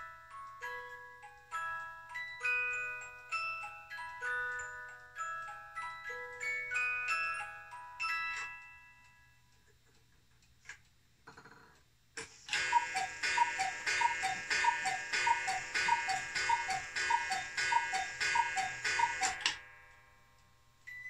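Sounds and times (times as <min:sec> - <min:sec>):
clock mechanism click: 0:11.8 - 0:19.6
cuckoo clock whistles calling: 0:12.5 - 0:19.6.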